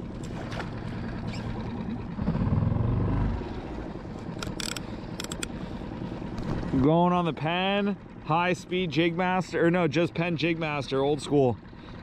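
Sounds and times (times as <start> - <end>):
outboard motor humming: 0.0 - 12.0
sharp clicks: 4.4 - 5.5.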